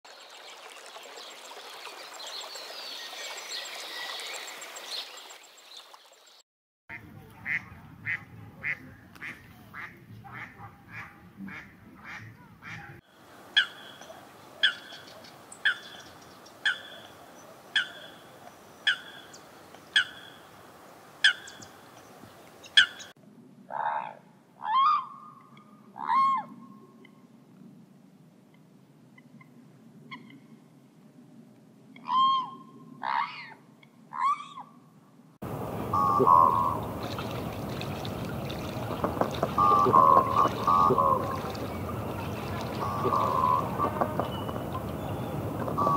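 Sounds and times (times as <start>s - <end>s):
ducks quacking: 35.9s - 45.9s.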